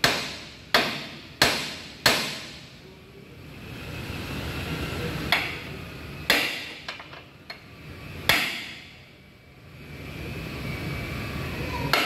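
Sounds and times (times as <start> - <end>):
hammer striking steel: 0.0 - 2.7, 6.3 - 7.1, 8.3 - 9.0.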